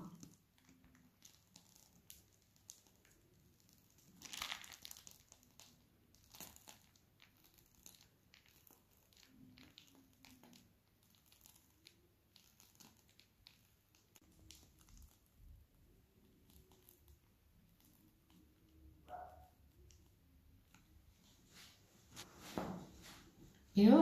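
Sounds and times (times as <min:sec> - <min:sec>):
plastic piping bag crinkling: 0:00.0 - 0:19.0.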